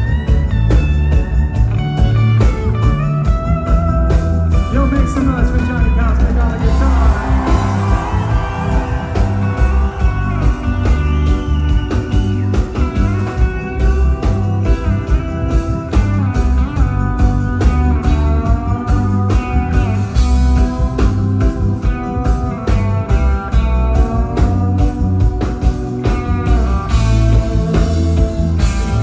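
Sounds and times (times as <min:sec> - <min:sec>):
electric guitar lead: 0:00.0 - 0:29.0
heavy bass: 0:00.0 - 0:29.0
steady drum beat: 0:00.0 - 0:29.0.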